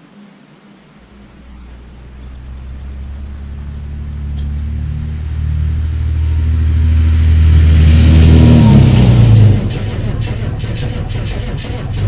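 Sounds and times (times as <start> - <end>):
turbo whine: 0.0 - 12.0
diesel engine revving and idling: 1.2 - 12.0.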